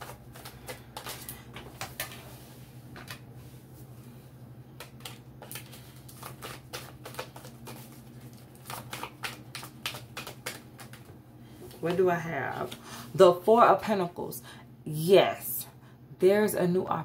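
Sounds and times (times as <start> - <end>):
cards being shuffled: 0.0 - 3.2, 4.8 - 12.0
steady low hum: 0.0 - 17.0.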